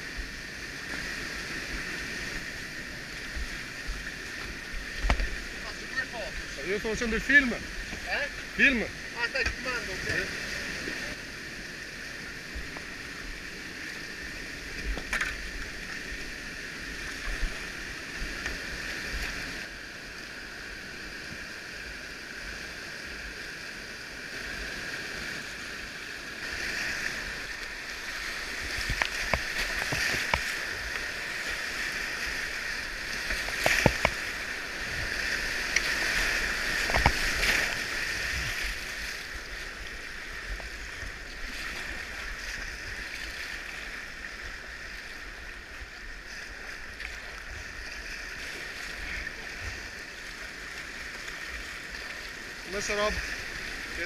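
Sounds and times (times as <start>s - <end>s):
paddle splashes: 0.0s - 11.3s, 24.2s - 54.0s
rushing whitewater: 0.0s - 54.0s.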